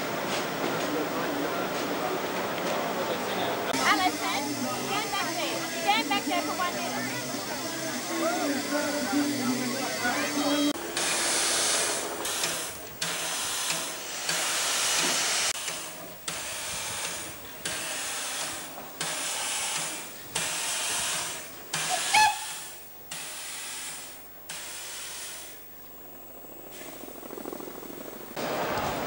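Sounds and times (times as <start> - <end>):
steam hissing from locomotive: 3.2 - 25.6.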